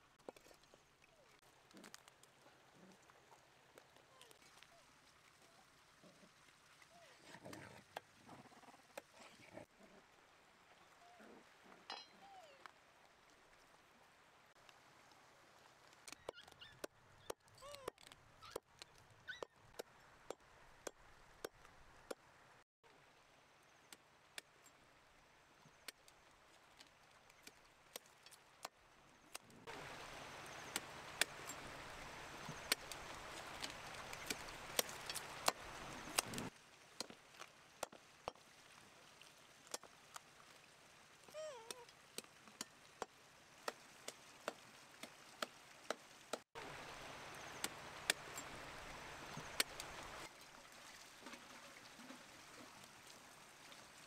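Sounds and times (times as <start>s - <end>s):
shallow river rushing: 29.7s - 36.6s.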